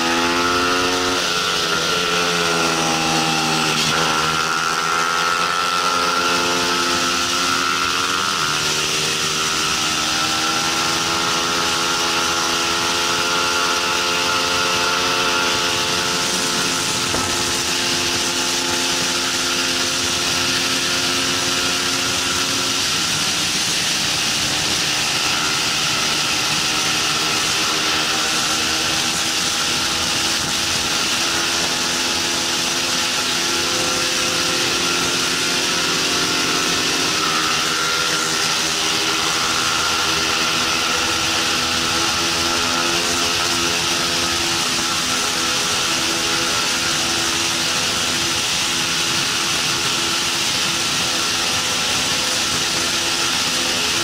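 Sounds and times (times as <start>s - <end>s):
motorcycle engine revving hard: 0.0s - 54.0s
wind rush: 15.3s - 19.5s.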